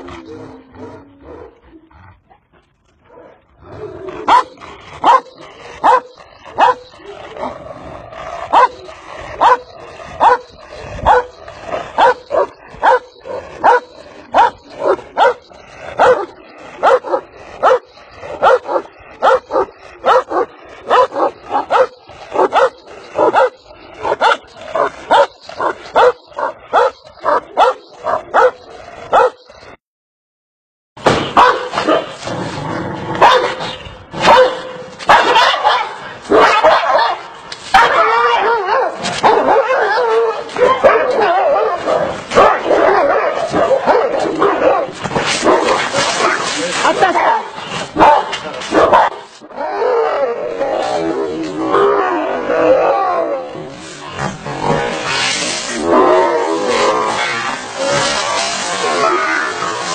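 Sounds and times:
large dog barking: 4.1 - 7.6, 8.2 - 29.5, 31.3 - 32.2, 33.1 - 50.9.

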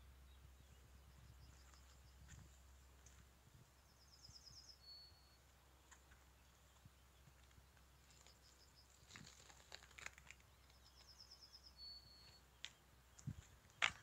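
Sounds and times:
soft rustles and crunches: 5.8 - 11.2.

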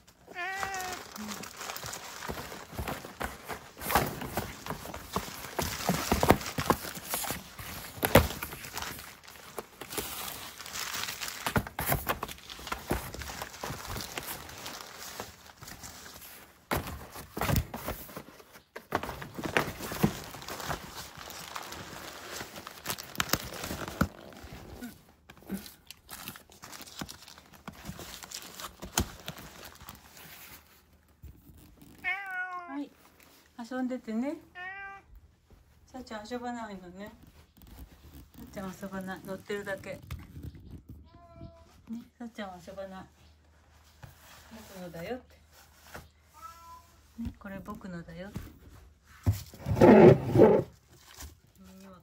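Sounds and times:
crumpled paper rustling: 0.0 - 32.4.

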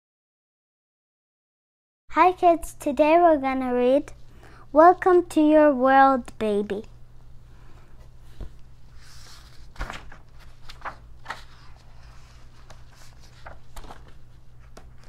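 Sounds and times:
steady low hum: 2.2 - 15.0
book pages rustling: 8.0 - 15.0.

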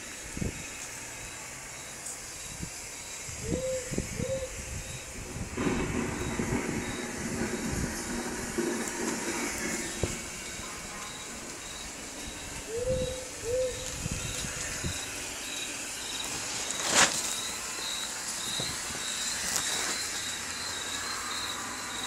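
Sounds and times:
high cricket chirps: 0.0 - 22.0
owl hooting: 3.4 - 5.1, 9.9 - 21.9.

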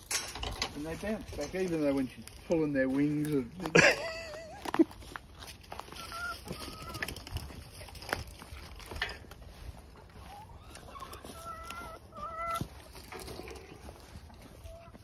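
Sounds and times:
hens clucking: 3.3 - 15.0.

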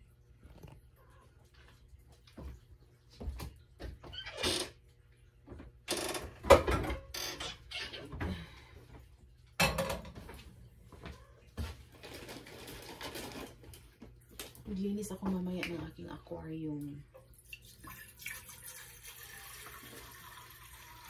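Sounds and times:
pots and pans clattering: 6.2 - 7.1, 9.6 - 10.5.

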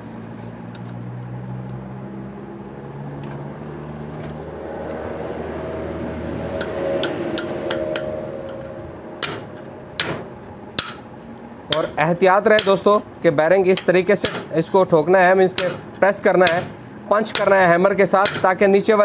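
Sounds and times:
hammer striking metal: 6.5 - 11.1, 11.7 - 13.0, 13.7 - 18.7.

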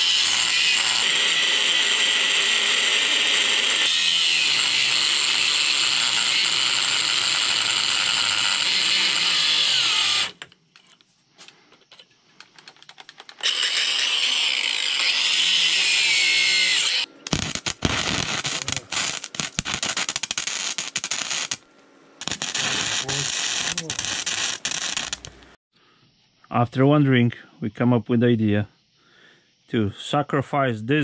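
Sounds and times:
power tool running: 0.0 - 10.4, 13.4 - 21.6, 22.2 - 25.6.

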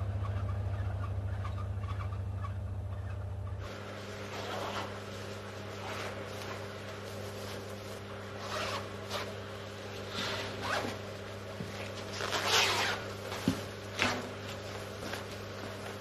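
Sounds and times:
steady low hum: 0.0 - 16.0
protective coveralls rustling: 3.7 - 16.0.

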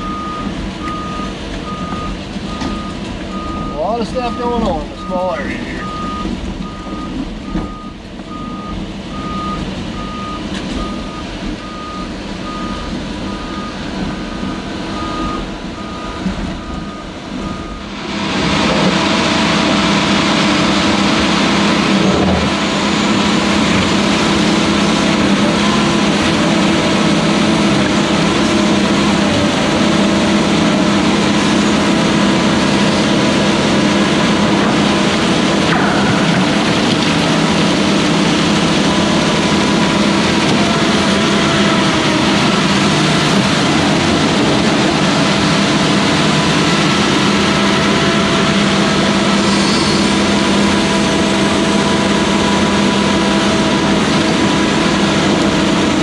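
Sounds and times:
back-up alarm beeping: 0.0 - 17.9
excavator diesel engine: 0.0 - 56.0.

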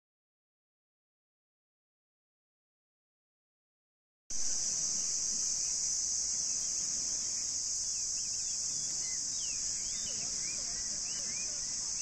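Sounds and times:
insect chorus buzzing: 4.3 - 12.0
faint bird chirps: 4.9 - 12.0.

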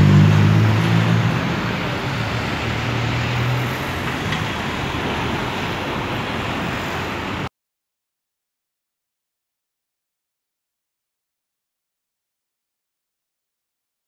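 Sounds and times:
low vehicle engine hum: 0.0 - 7.5
passing cars: 0.0 - 7.5.

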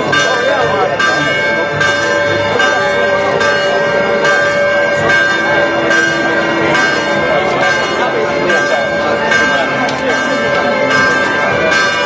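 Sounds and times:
church bells pealing: 0.0 - 12.0
crowd voices: 0.0 - 12.0.

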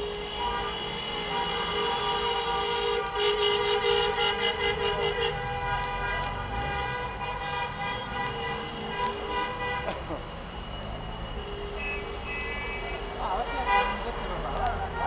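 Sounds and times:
car horns pulsing chord: 0.0 - 10.0.

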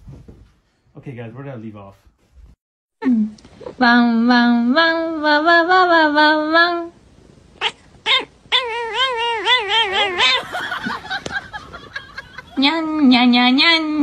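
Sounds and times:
cat yowling: 7.6 - 10.4.

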